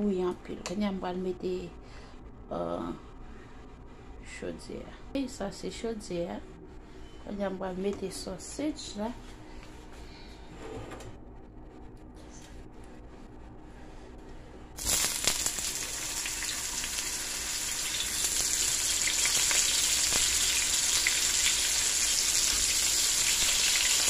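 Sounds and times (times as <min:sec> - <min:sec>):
oil spitting crackles: 0:14.8 - 0:17.0
sausage sizzling in hot oil: 0:14.8 - 0:24.0.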